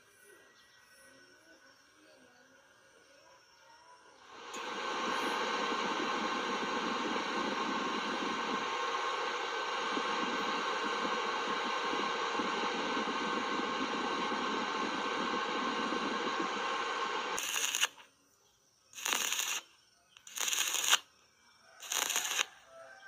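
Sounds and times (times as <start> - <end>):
welder cooling fan whirring: 4.2 - 18.0, 19.0 - 21.0, 21.8 - 22.5
welding arc crackle: 4.4 - 18.0, 19.0 - 21.0, 21.8 - 22.5.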